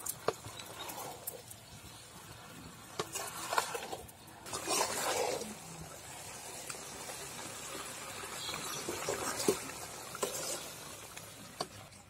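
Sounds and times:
spatula scraping and knocking pan: 3.0s - 5.5s, 9.0s - 10.8s.

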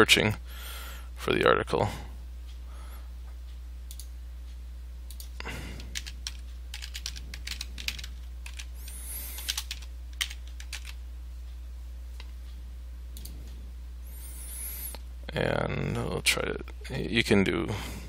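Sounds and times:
typing on computer keyboard: 5.1s - 8.7s, 9.3s - 11.0s.

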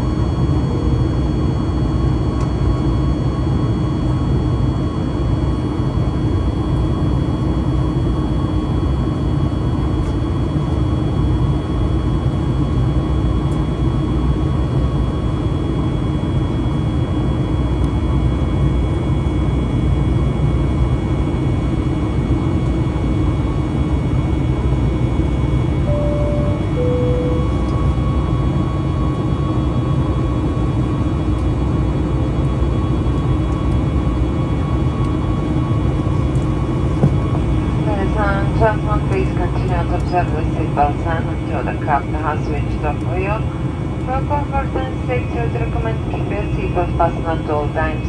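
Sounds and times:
airplane cabin roar: 0.0s - 48.0s
two-note chime: 25.9s - 27.7s.

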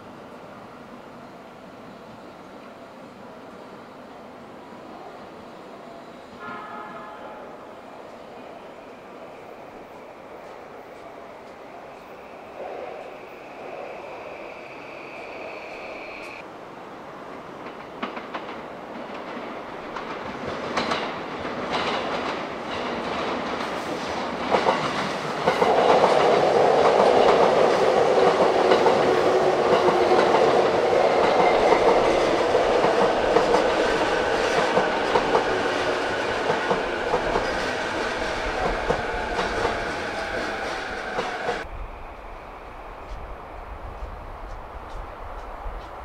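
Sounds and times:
steady train whine: 0.0s - 46.0s
train wheels clattering over rails: 17.6s - 41.7s.

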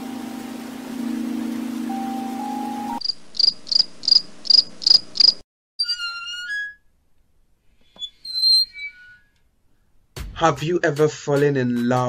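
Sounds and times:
steady hum with hiss: 0.0s - 5.3s
high cricket-like chirping: 3.0s - 5.4s
whistled warbling notes: 5.8s - 6.9s, 8.0s - 9.4s.

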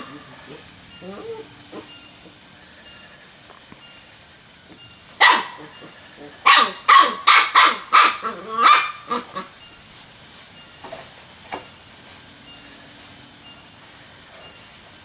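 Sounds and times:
young dog barking: 5.2s - 5.8s, 6.4s - 9.5s.

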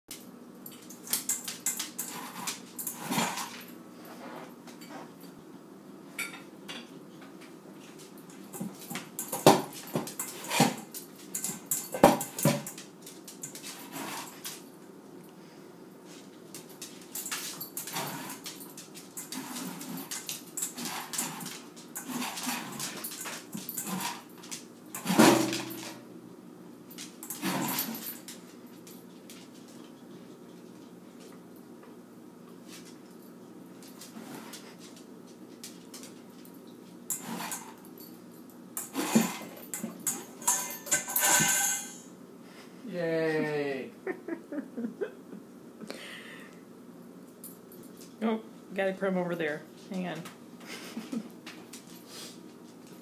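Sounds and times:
kibble clattering in metal bowl: 38.8s - 42.0s.

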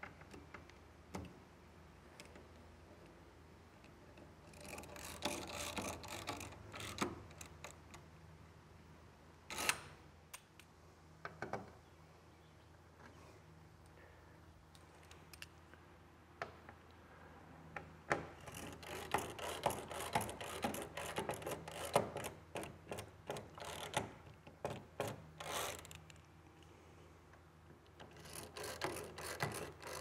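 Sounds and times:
rapid clicking of hand tool: 4.5s - 7.8s, 18.4s - 26.0s, 28.0s - 30.0s.

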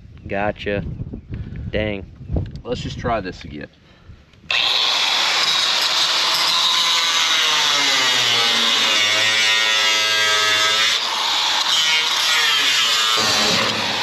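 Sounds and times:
reciprocating saw cutting steel: 4.5s - 14.0s.

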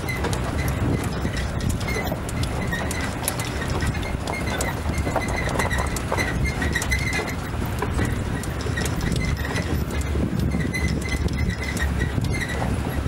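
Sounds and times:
vehicle body rattling: 0.0s - 13.0s
vehicle engine and road rumble: 0.0s - 13.0s.

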